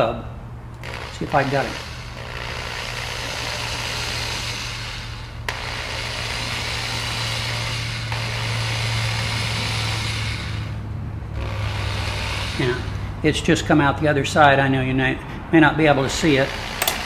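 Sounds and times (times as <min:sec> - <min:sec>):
drill click: 0:00.7 - 0:10.5, 0:16.4 - 0:17.0
electric drill running: 0:00.8 - 0:10.8, 0:11.4 - 0:13.2, 0:16.1 - 0:17.0.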